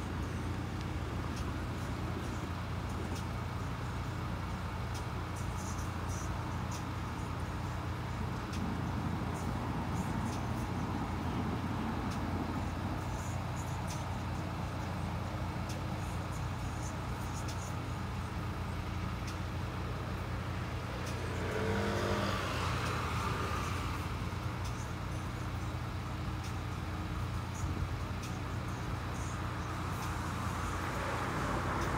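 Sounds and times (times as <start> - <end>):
low rumble of traffic: 0.0 - 31.9
vehicle accelerating past: 20.2 - 24.4.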